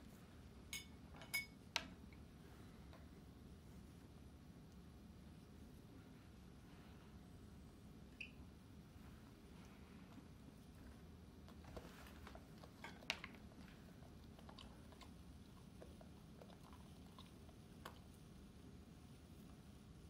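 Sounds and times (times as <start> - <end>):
dog chewing food: 11.3 - 18.5.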